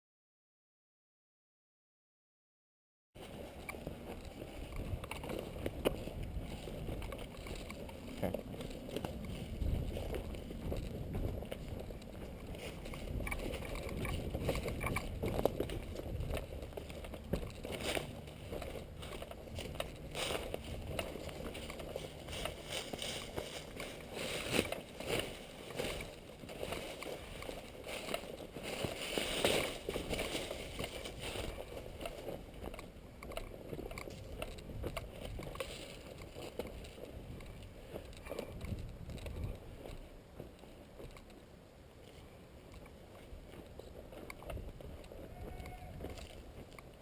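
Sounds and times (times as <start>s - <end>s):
footsteps crunching dry leaves: 3.2s - 40.9s, 41.9s - 47.0s
microphone handling rumble: 3.4s - 40.1s.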